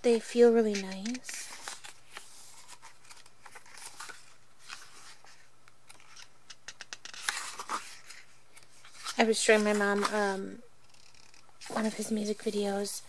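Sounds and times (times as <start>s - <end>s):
page turning: 0.4s - 10.3s
paper pages rustling: 0.4s - 10.4s.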